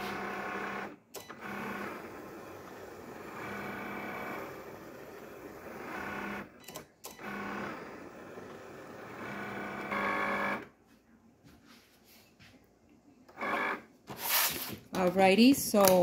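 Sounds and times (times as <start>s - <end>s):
cutting machine motor whir: 0.0s - 10.7s, 13.3s - 13.9s.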